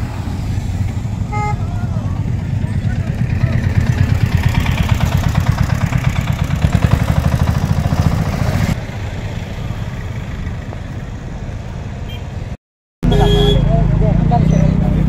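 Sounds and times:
road traffic noise: 0:00.0 - 0:15.0
small engine chugging: 0:02.8 - 0:08.6.

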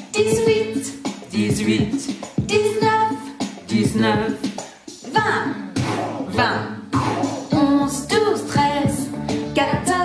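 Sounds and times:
backing music: 0:00.0 - 0:10.0
woman singing: 0:00.1 - 0:01.0, 0:02.4 - 0:04.0, 0:07.5 - 0:10.0.

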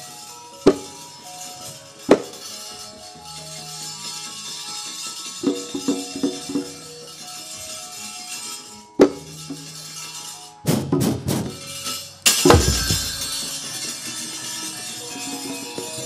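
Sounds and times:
knocks on wooden chest: 0:12.5 - 0:13.3
heavy strike with deep boom: 0:12.5 - 0:13.4.

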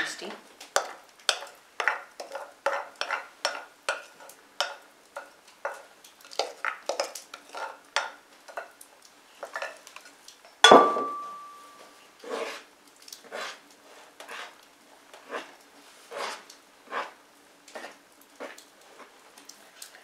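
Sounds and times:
spoon scraping and tapping bowl: 0:00.8 - 0:08.7
bowl set down with ringing clunk: 0:10.6 - 0:11.6.

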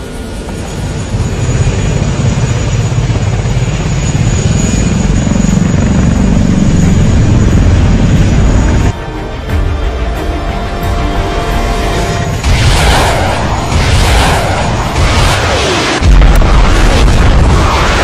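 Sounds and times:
drone propellers buzzing: 0:00.0 - 0:18.0.

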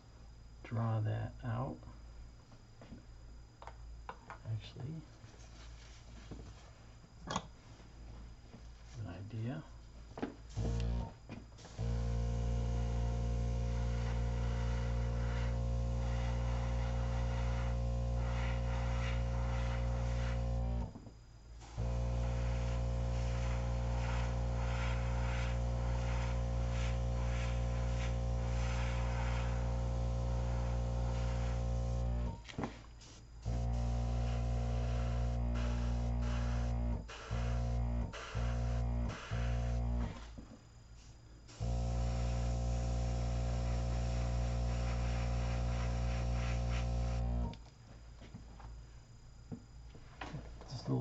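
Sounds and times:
airbrush compressor humming: 0:10.5 - 0:21.0, 0:21.6 - 0:40.4, 0:41.5 - 0:47.6
air hissing through airbrush: 0:11.6 - 0:20.9, 0:21.6 - 0:40.3, 0:41.0 - 0:47.5.

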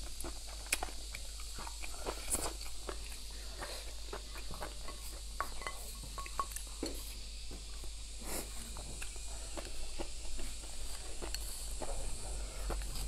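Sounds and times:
wet chewing and slurping: 0:00.0 - 0:07.2
chopsticks tapping a plate: 0:04.6 - 0:07.0.

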